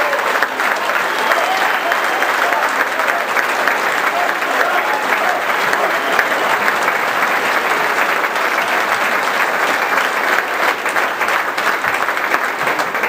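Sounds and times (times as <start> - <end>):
large audience applauding: 0.0 - 13.0.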